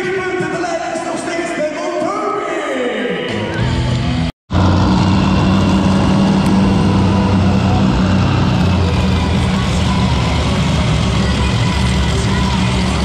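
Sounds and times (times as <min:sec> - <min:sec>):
truck engine running: 0:03.8 - 0:13.0.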